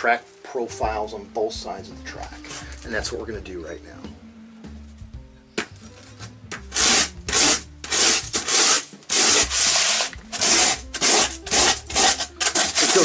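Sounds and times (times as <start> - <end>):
rasp scraping foam board: 6.2 - 13.0.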